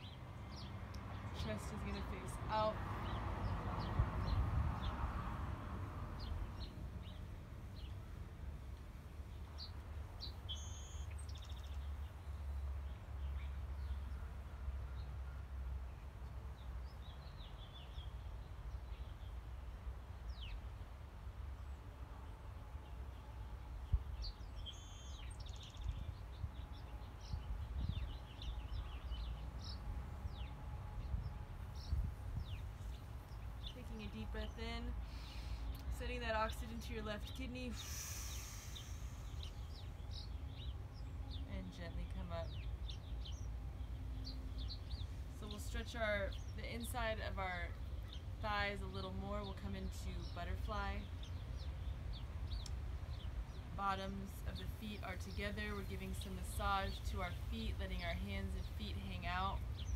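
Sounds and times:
small birds chirping: 0.0 - 5.2, 6.2 - 8.1, 9.3 - 20.8, 22.8 - 59.9
birds chirping and whistling: 10.2 - 11.8, 37.2 - 41.4
buzzy bird trill: 35.9 - 43.5.

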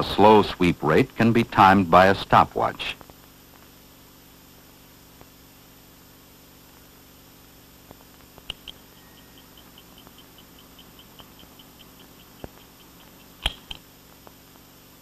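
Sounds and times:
stopwatch click: 8.5 - 8.8, 9.6 - 13.8
stopwatch ticking: 8.5 - 13.8.

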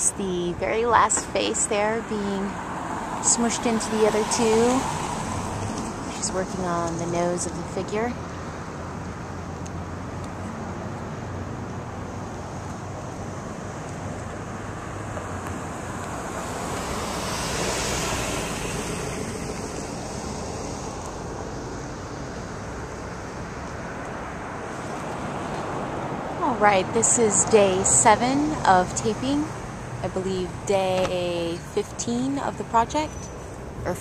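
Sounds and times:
street traffic hum: 0.0 - 34.0
car passing by: 2.5 - 7.3, 9.9 - 28.8.

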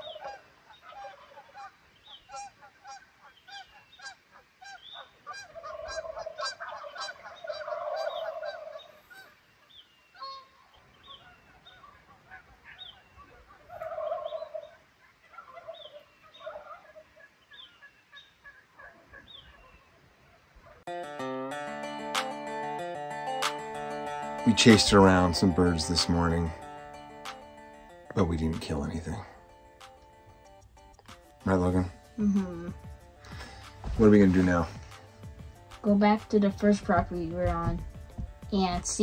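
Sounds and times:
small birds calling: 0.0 - 20.8, 23.4 - 39.0
geese honking: 0.0 - 30.7, 33.1 - 39.0.

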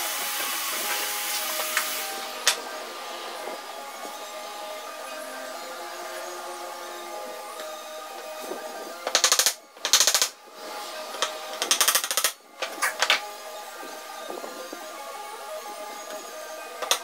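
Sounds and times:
hammer tapping wooden dowels: 8.4 - 10.4, 11.1 - 13.3, 16.8 - 17.0.

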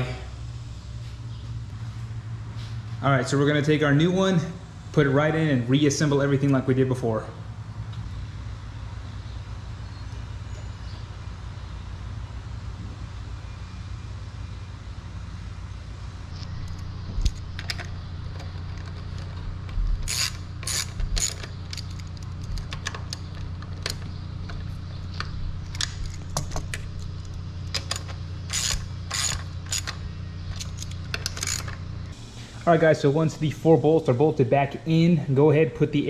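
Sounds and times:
steady low hum: 0.0 - 36.0
ratchet wrench clicking: 20.0 - 24.1, 25.7 - 31.8.

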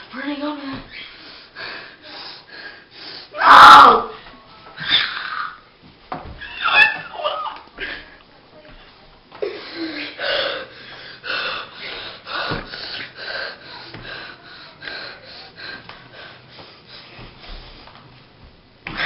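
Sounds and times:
boy gasping and panting: 9.4 - 17.1.

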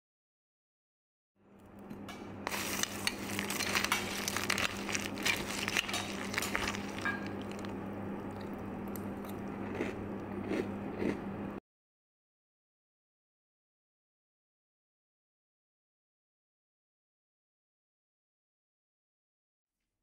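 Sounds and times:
cereal pouring into a bowl: 2.5 - 7.7.

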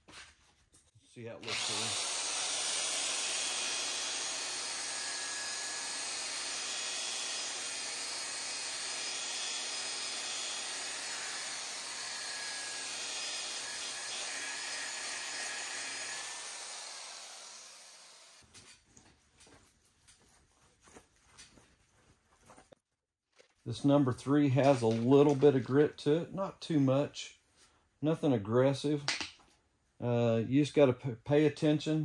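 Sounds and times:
electric polisher motor hum: 1.4 - 18.4.

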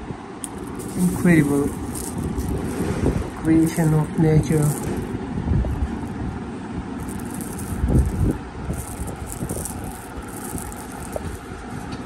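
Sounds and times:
low rumbling handling noise: 0.0 - 12.0
crystals clinking in a hand: 0.5 - 5.1, 7.0 - 11.6.

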